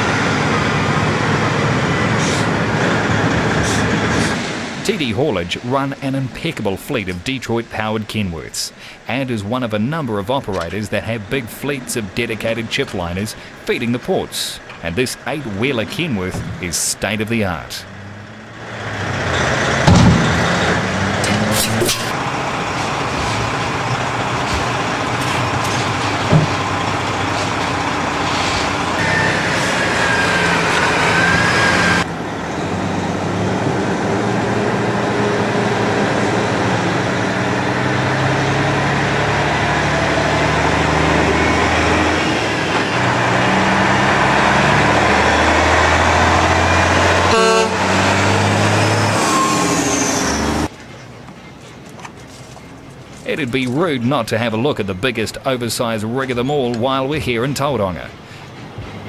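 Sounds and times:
diesel truck engine running: 0:00.0 - 0:59.0
truck horn toot: 0:29.0 - 0:32.0, 0:45.6 - 0:50.7.

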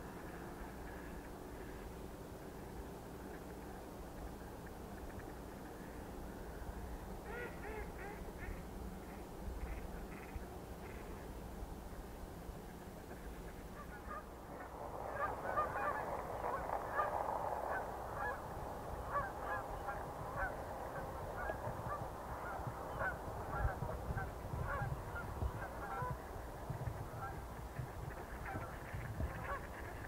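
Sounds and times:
geese honking: 0:07.2 - 0:11.0, 0:13.0 - 0:26.3, 0:26.9 - 0:27.4, 0:28.1 - 0:30.0.

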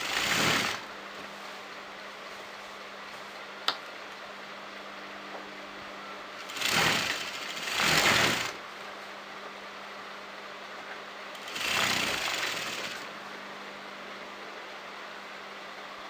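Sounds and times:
sewing machine stitching: 0:00.0 - 0:00.9, 0:06.4 - 0:08.6, 0:11.4 - 0:13.2
steady low hum: 0:00.0 - 0:16.0.

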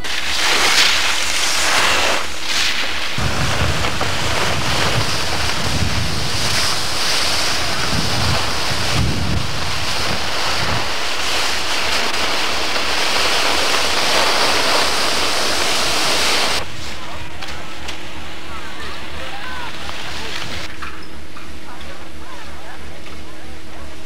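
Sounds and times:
wind buffeting microphone: 0:03.2 - 0:16.8.

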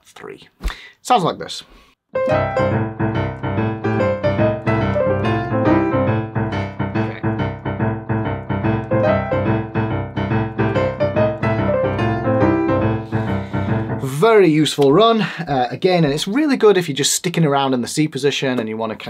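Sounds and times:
boogie-woogie digital piano: 0:02.2 - 0:14.8.

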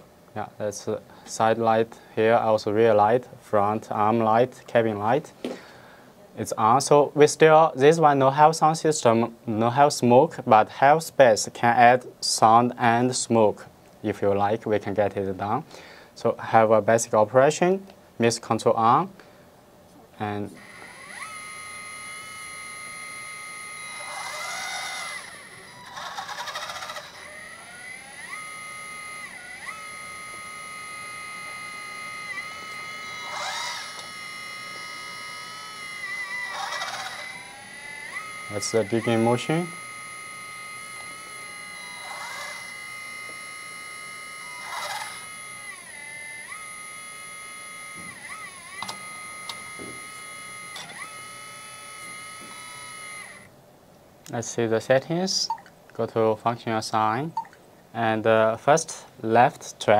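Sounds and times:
whine rising and falling in pitch: 0:20.5 - 0:53.5
hydraulic pump motor whining: 0:20.6 - 0:53.5.

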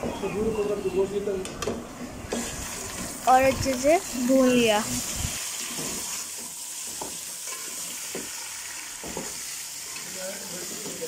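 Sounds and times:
meat sizzling in hot oil: 0:02.3 - 0:11.0.

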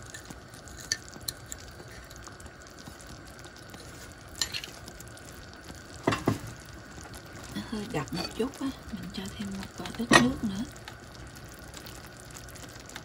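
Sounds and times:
sauce simmering with bubbling hiss: 0:00.0 - 0:13.0.

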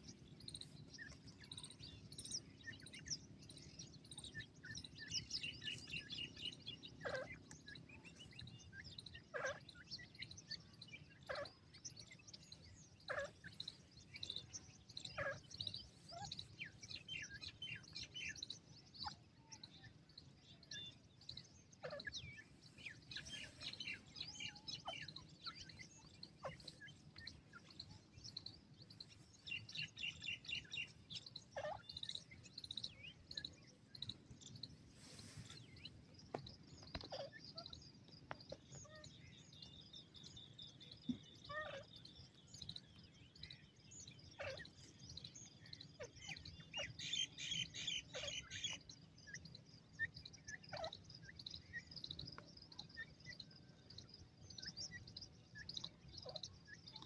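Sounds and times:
bird trills: 0:00.0 - 0:19.7, 0:21.7 - 0:35.9, 0:43.4 - 0:53.6
birds chirping: 0:00.0 - 0:57.0.

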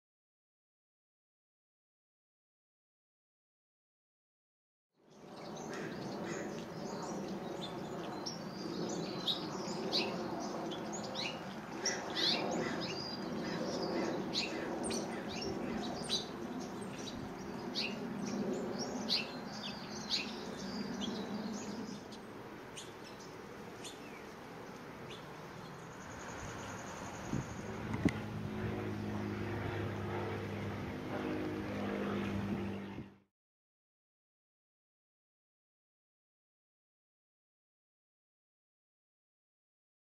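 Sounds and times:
goldfinches chirping: 0:05.3 - 0:27.7.

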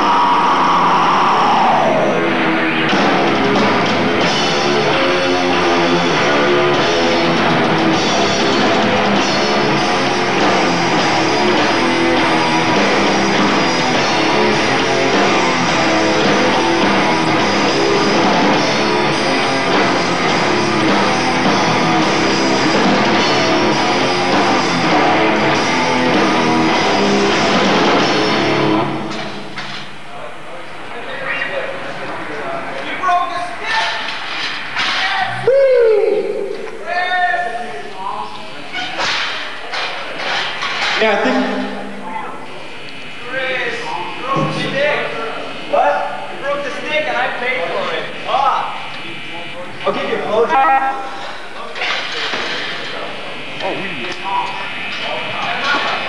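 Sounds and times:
drum kit: 0:00.0 - 0:29.6
distorted electric guitars: 0:00.0 - 0:30.0.

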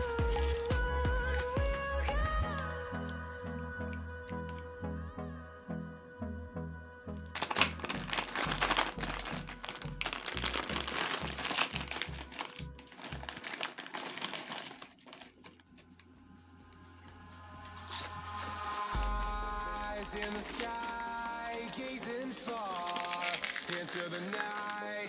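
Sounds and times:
chip packet crinkling: 0:00.0 - 0:00.9, 0:07.4 - 0:16.0, 0:17.6 - 0:25.0
background music with beat: 0:00.0 - 0:12.8, 0:16.3 - 0:22.7.

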